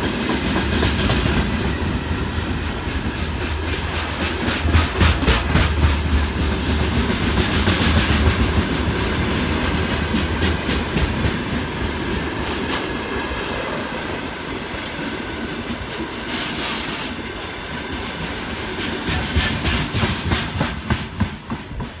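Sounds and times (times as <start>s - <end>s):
wheels clacking over rail joints: 0.0s - 13.2s, 17.8s - 22.0s
freight train rumble: 0.0s - 22.0s.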